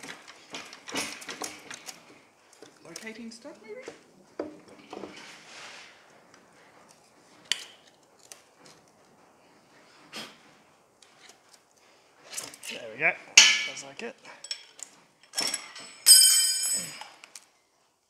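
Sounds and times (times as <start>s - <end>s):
metal bar clinking and knocking: 13.4s - 17.1s.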